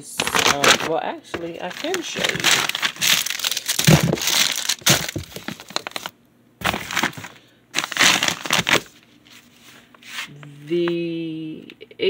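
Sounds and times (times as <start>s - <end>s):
plastic bags crinkling: 0.0s - 9.5s.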